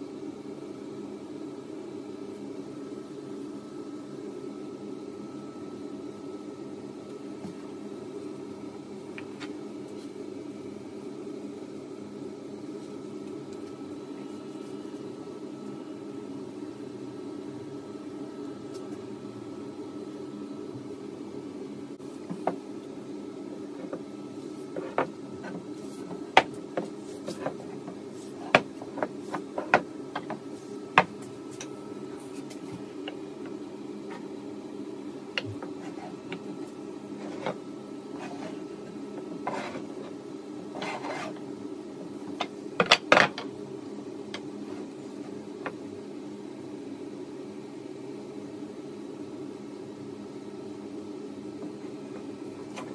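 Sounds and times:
steady low hum: 0:00.0 - 0:52.9
wood scraping and rubbing: 0:40.8 - 0:41.4.

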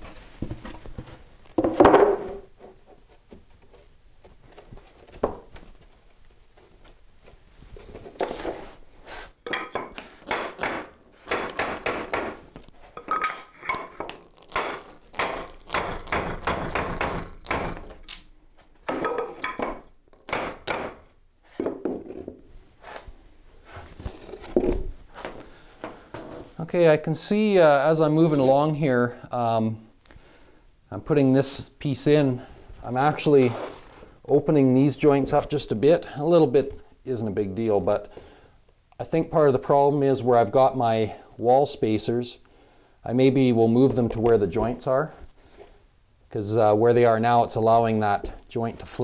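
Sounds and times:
hammer knocking on wooden block: 0:14.6 - 0:17.8.

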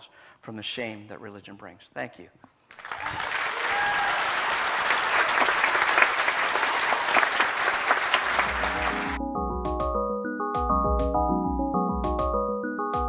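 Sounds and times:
audience applauding: 0:02.7 - 0:09.2
music: 0:08.2 - 0:13.0.

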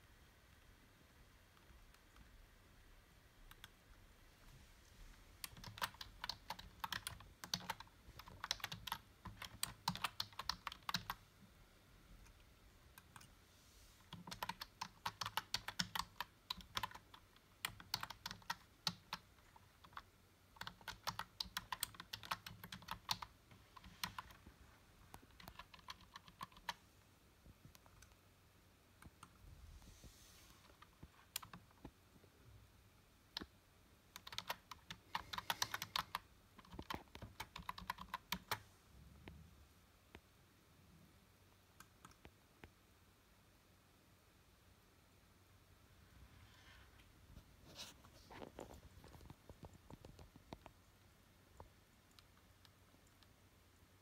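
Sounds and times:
typing on computer keyboard: 0:05.4 - 0:11.2, 0:14.1 - 0:24.4, 0:25.1 - 0:26.8, 0:30.7 - 0:31.8, 0:34.1 - 0:38.6.

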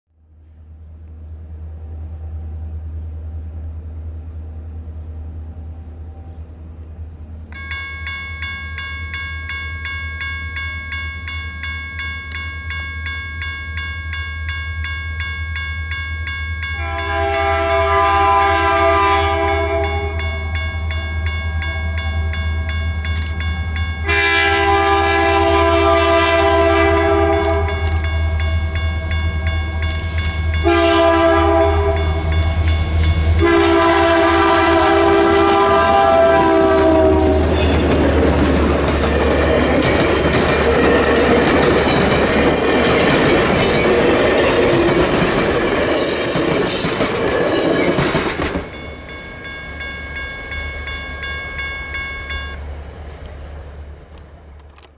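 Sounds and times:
electronic crossing bell dinging: 0:07.5 - 0:17.3, 0:19.5 - 0:24.2, 0:48.7 - 0:52.6
locomotive air horn blasts: 0:16.8 - 0:20.5, 0:24.0 - 0:27.9, 0:30.6 - 0:32.6, 0:33.3 - 0:37.8.

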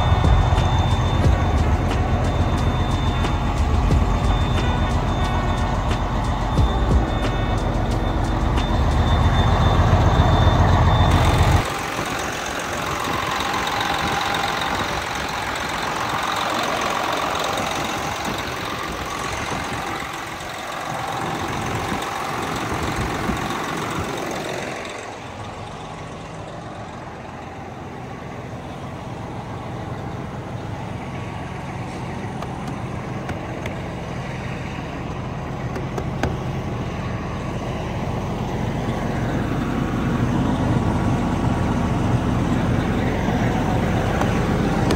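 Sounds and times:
diesel truck engine running: 0:00.0 - 0:44.9.

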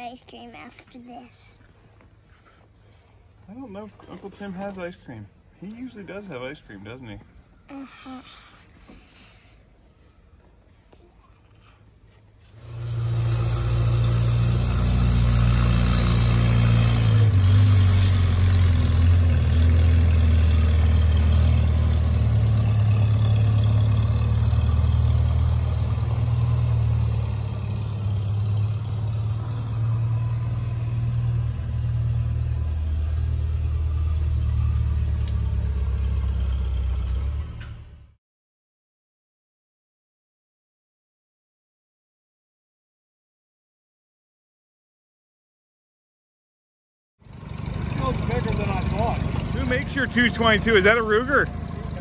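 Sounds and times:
vehicle engine running: 0:12.6 - 0:38.2, 0:47.2 - 0:52.0.

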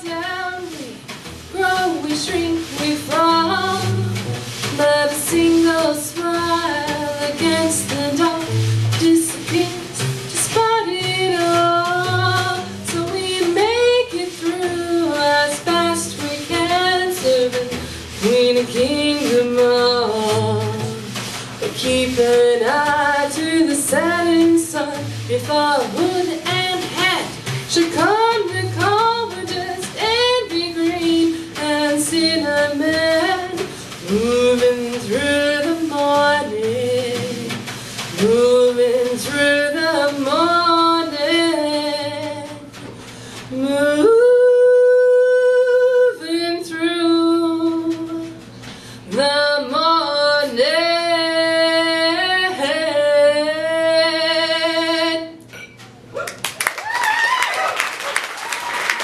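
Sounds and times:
woman singing with vibrato: 0:00.0 - 0:42.8, 0:43.5 - 0:55.5
bowed cello: 0:00.0 - 0:44.1.

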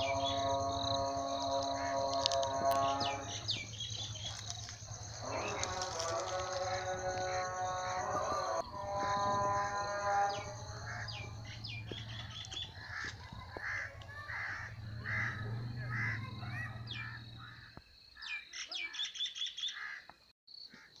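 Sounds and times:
high insect-like trill: 0:00.0 - 0:12.6
birds chirping: 0:00.0 - 0:20.1.

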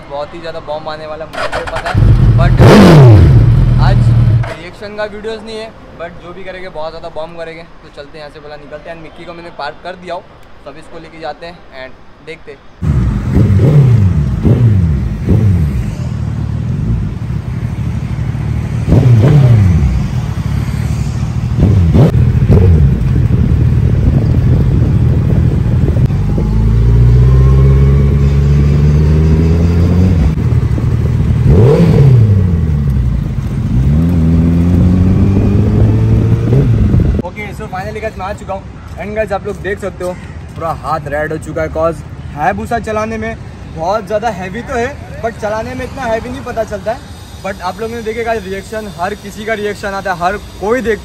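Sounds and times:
motorcycle engine revving: 0:01.4 - 0:04.6, 0:12.8 - 0:37.2.

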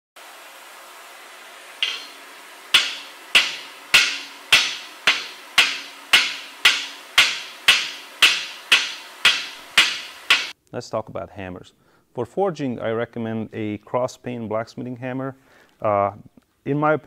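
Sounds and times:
hammer striking steel: 0:01.8 - 0:10.6.

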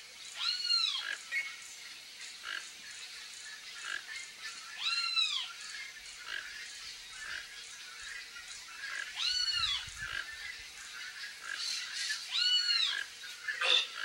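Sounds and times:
faint birds chirping: 0:00.0 - 0:14.0
harsh bird calls: 0:11.3 - 0:14.0.

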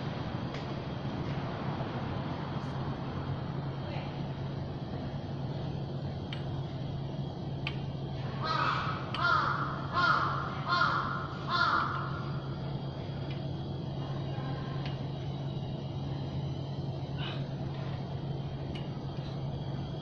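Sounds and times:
steady low hum: 0:00.0 - 0:20.0
crow cawing: 0:08.4 - 0:12.3.

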